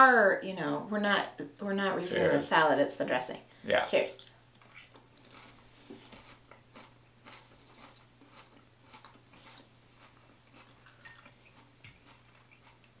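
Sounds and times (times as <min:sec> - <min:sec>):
chewing lettuce: 0:05.2 - 0:13.0.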